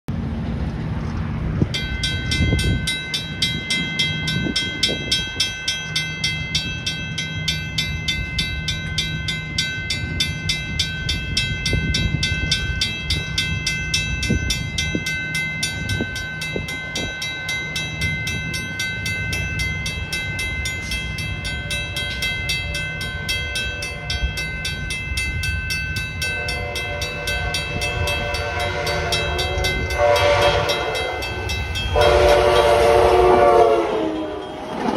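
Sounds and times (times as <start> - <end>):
high-pitched pulsing drone: 15.9 - 34.8
train horn: 26.2 - 34.6.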